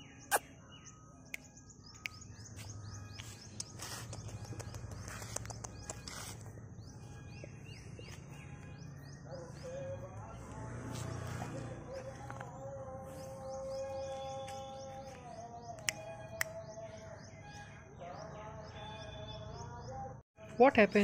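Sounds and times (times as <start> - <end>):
outdoor background noise: 0.0 - 21.0
small birds chirping: 0.0 - 21.0.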